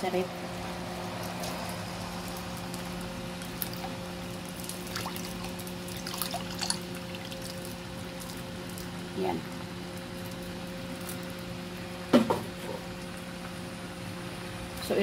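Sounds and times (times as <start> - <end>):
steady low hum: 0.0 - 15.0
bubbles popping: 4.8 - 7.7.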